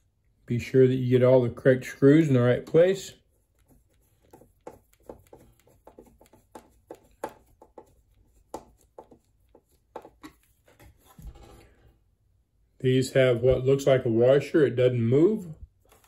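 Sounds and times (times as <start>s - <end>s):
hands clicking and tapping plastic: 3.6s - 10.5s.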